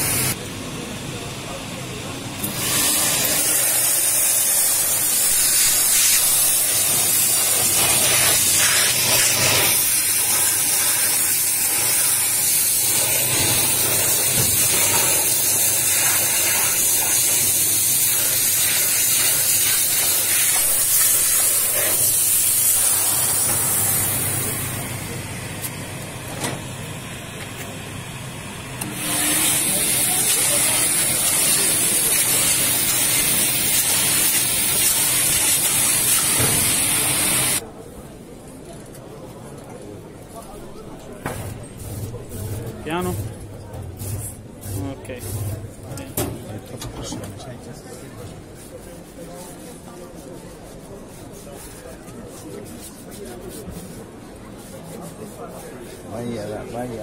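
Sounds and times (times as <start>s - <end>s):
steam jet hissing: 0.0s - 0.4s, 2.4s - 25.7s, 28.8s - 37.6s.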